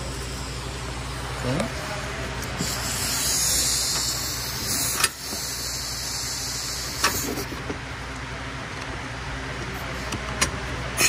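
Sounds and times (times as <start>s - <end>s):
impact wrench hissing: 2.4s - 7.5s.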